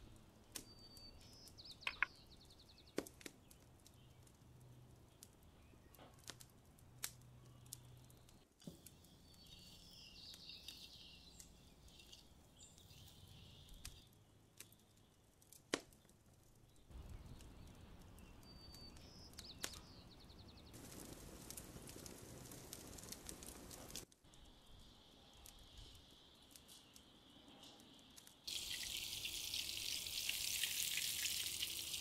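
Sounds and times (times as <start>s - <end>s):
faint steady hiss: 0.0s - 32.0s
bird chirps: 8.8s - 14.1s, 17.0s - 20.8s.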